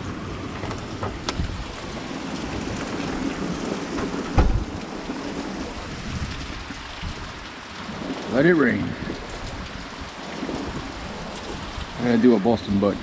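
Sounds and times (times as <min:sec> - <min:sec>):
heavy rain: 0:00.0 - 0:13.0
loud low thump: 0:04.3 - 0:04.8.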